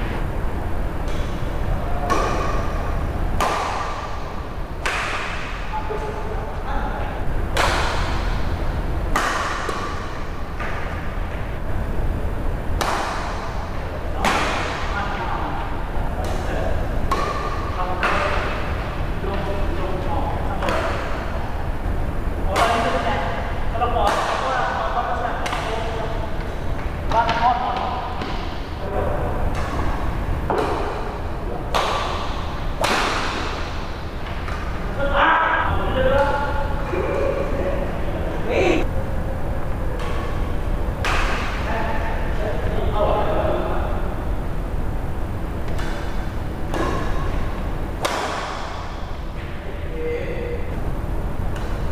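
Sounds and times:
steady low hum: 0.0s - 51.9s
racket hitting shuttlecock: 1.0s - 6.2s, 7.5s - 11.4s, 12.8s - 15.0s, 16.2s - 19.4s, 22.5s - 23.0s, 24.0s - 24.6s, 25.4s - 28.7s, 29.5s - 34.9s, 39.9s - 41.7s, 45.6s - 49.6s, 51.5s - 51.9s.

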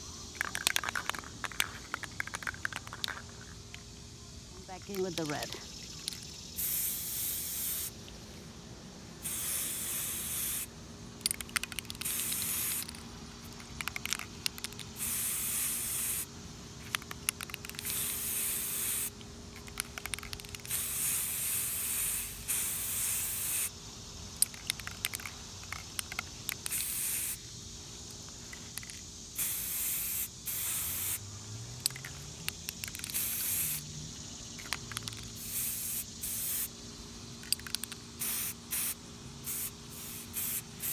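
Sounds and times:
spray can clicks: 0.4s - 3.3s, 11.2s - 13.0s, 13.6s - 16.2s, 24.4s - 27.4s, 31.8s - 33.8s, 37.4s - 38.9s
spray can hissing bursts: 6.0s - 8.0s, 9.2s - 23.8s, 24.5s - 27.4s, 28.5s - 31.3s, 32.0s - 33.9s, 34.6s - 36.7s, 37.5s - 40.9s.

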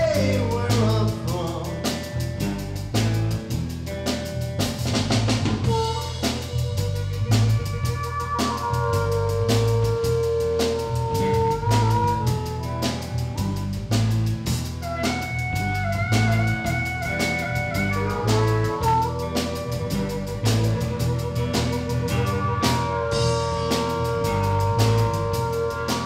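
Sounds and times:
bass guitar: 0.0s - 26.0s
drum kit: 0.0s - 26.0s
electric guitar: 0.0s - 26.0s
harmonica playing long notes: 5.7s - 13.9s, 14.6s - 26.0s.

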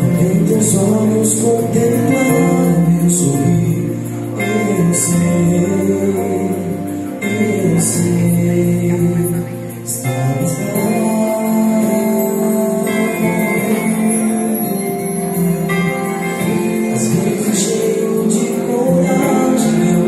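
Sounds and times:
lead singer on microphone: 0.0s - 20.0s
vocal group singing gospel: 16.2s - 20.0s.

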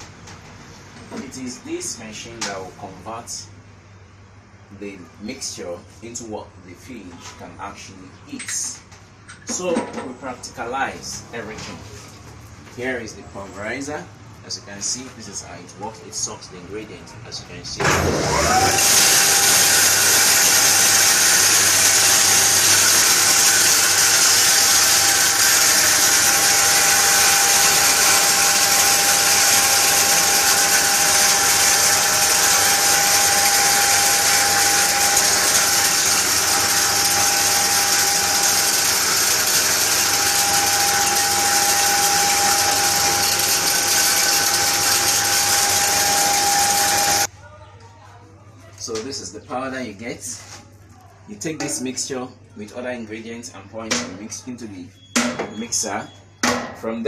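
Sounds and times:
grain grinding mill running: 17.8s - 47.3s.

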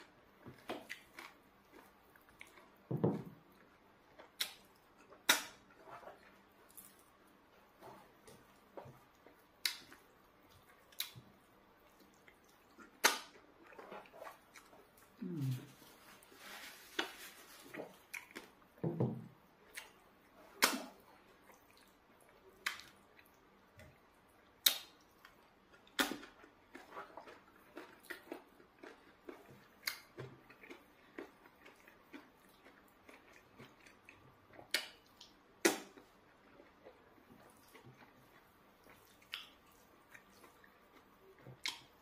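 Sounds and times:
chewing and lip smacks: 0.5s - 7.2s, 7.8s - 15.8s, 17.7s - 18.6s, 19.6s - 42.0s
low voice hum: 15.2s - 15.9s.

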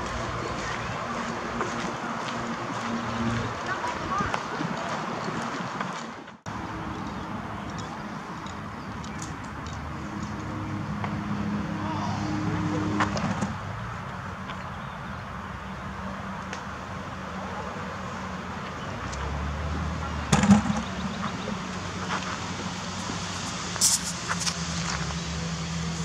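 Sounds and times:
engine hum: 0.0s - 26.0s
low engine hum: 0.0s - 26.0s.

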